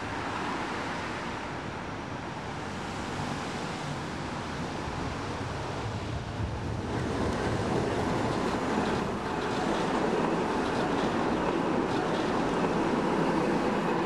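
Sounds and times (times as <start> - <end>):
tram wheels rumbling on rails: 5.0 - 14.0.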